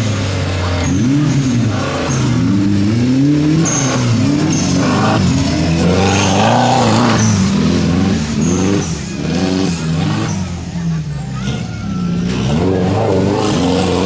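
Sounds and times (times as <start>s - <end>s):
buggy engine revving hard: 0.0s - 14.0s.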